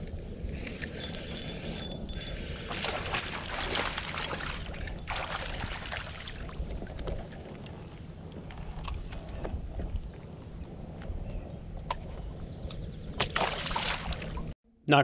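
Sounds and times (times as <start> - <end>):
wind rumble on microphone: 0.0 - 14.6
water rushing along kayak hull: 2.4 - 9.6.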